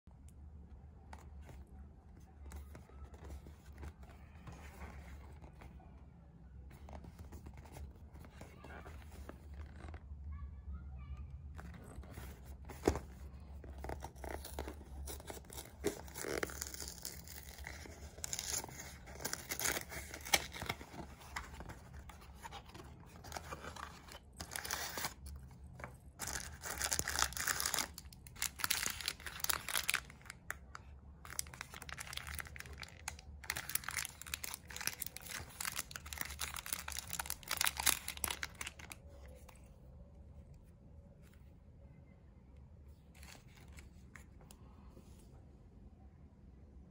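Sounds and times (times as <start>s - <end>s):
plastic wrapper crinkling: 11.6s - 39.6s.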